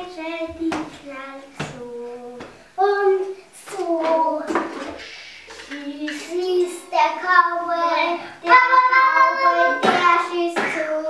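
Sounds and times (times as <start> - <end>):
children singing: 2.8 - 11.0
breathy bursts: 4.9 - 5.6.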